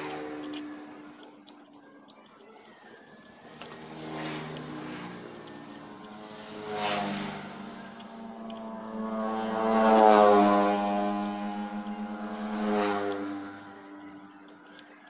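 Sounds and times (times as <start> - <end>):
vehicle engine running: 3.1 - 14.8.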